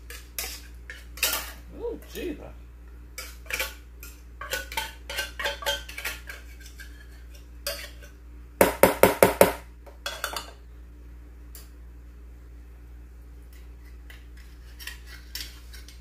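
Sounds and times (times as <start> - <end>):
fork scraping inside a tin can: 0.0 - 1.6, 13.8 - 16.0.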